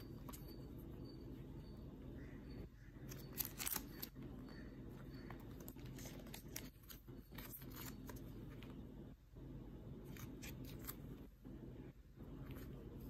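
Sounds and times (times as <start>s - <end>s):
low steady hum: 0.0s - 13.0s
banknotes and plastic crinkling: 2.8s - 8.8s.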